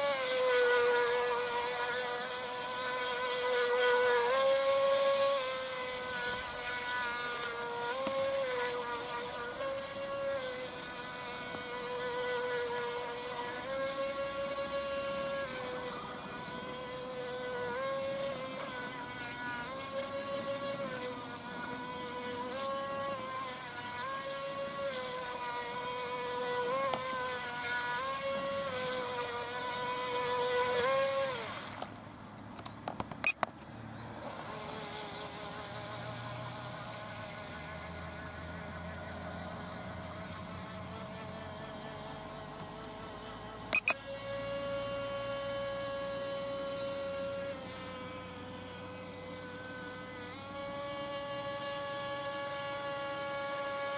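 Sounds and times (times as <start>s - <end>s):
small electric motor whining: 0.0s - 53.9s
sharp clicks: 32.5s - 33.6s, 43.7s - 44.0s.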